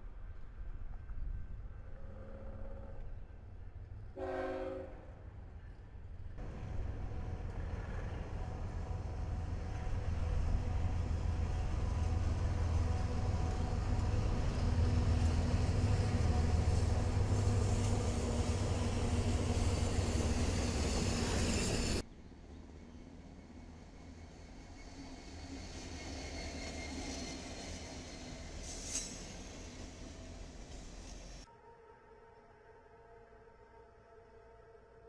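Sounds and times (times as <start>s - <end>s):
locomotive engines droning: 5.0s - 32.6s
train cars rolling on rails: 6.4s - 22.0s, 22.8s - 31.5s.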